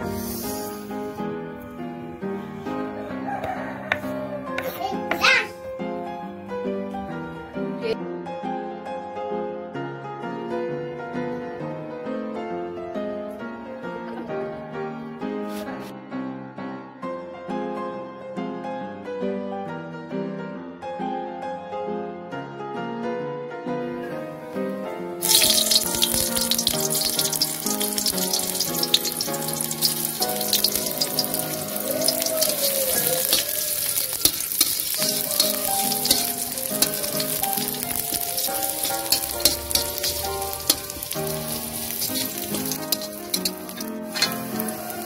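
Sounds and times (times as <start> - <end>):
shallots sizzling in hot oil: 0.0 - 1.2, 25.2 - 45.0
instrumental background music: 0.0 - 16.0, 23.7 - 45.0.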